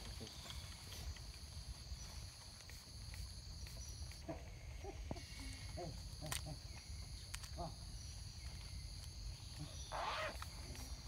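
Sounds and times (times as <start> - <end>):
insects buzzing: 0.0 - 11.0
baby monkey squeaky calls: 9.9 - 10.4.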